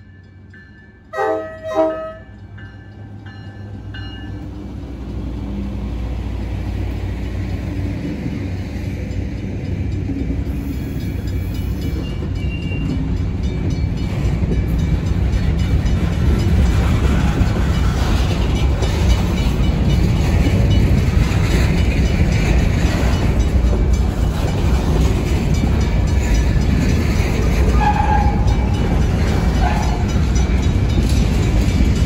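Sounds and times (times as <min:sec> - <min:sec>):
diesel locomotives rumbling past: 0:00.0 - 0:32.0
freight cars rolling by: 0:00.2 - 0:32.0
locomotive horn blasts: 0:01.1 - 0:02.4, 0:27.7 - 0:28.6.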